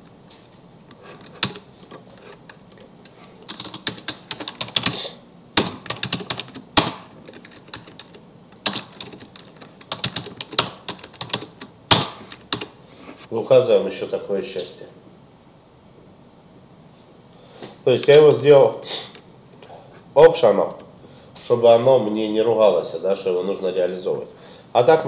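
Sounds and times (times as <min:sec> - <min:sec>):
keyboard typing clicks: 0:01.2 - 0:05.0, 0:05.6 - 0:12.7.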